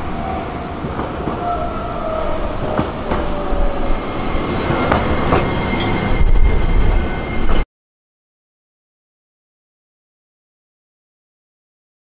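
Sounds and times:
streetcar rumbling on rails: 0.0s - 7.6s.

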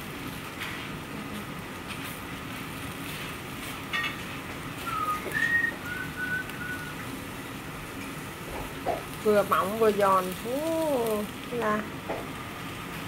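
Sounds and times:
batter sizzling in a frying pan: 0.0s - 13.0s
whistled notes: 4.8s - 7.0s.

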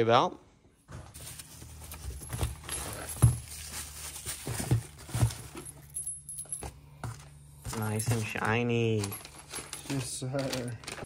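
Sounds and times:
metal parts clinking: 1.8s - 4.2s, 7.7s - 11.0s.

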